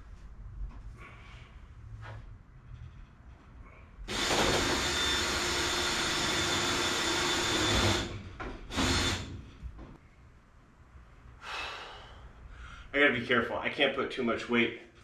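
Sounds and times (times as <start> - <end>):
drill running: 4.1 - 9.4.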